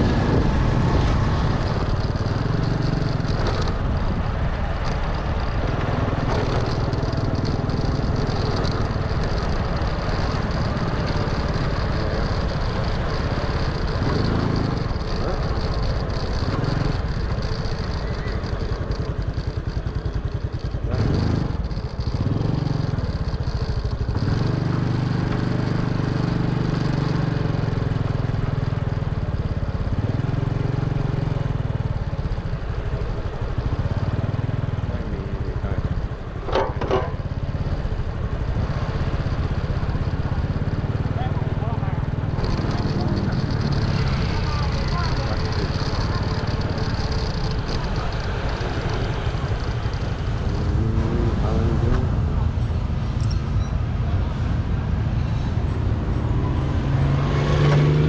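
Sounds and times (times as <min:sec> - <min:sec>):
wind rumbling on microphone: 0:00.0 - 0:25.1
small vehicle engine running: 0:00.0 - 0:58.0.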